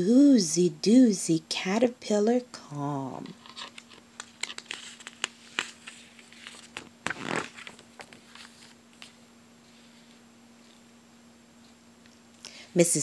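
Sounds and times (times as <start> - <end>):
book page rustling and turning: 3.2 - 10.9.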